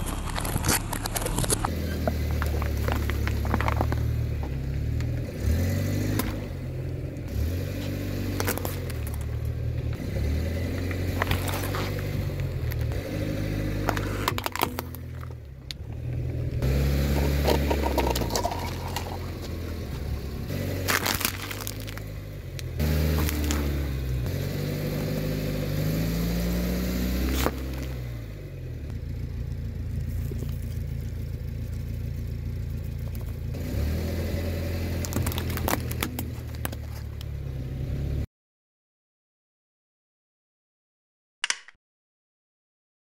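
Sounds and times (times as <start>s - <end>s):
plastic objects crushed under tyre: 0.0s - 5.2s, 8.2s - 9.4s, 10.7s - 13.0s, 13.8s - 15.9s, 17.1s - 24.0s, 27.2s - 28.0s, 34.8s - 37.3s.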